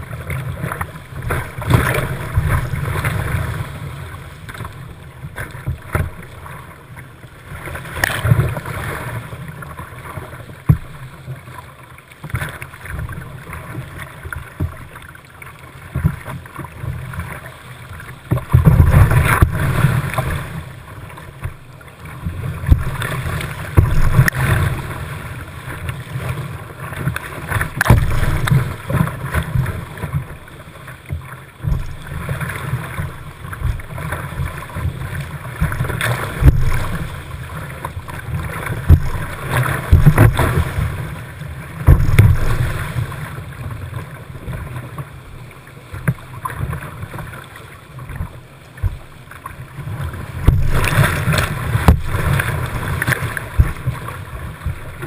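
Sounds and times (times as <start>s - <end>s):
loud water splashes: 27.5s - 29.8s, 31.7s - 43.4s, 50.2s - 54.9s.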